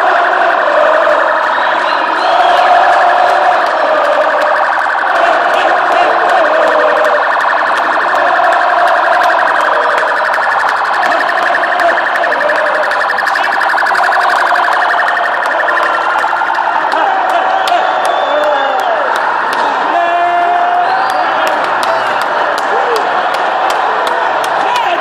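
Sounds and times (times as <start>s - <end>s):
police siren pulsing: 0.0s - 19.9s
big crowd noise: 0.0s - 25.0s.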